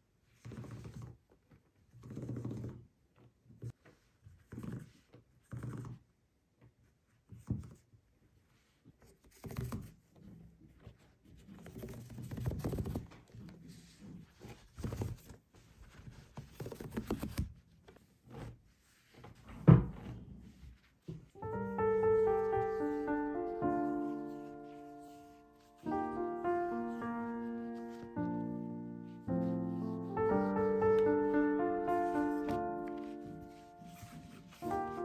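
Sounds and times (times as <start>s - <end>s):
yarn rustling on table: 20.4s - 35.0s.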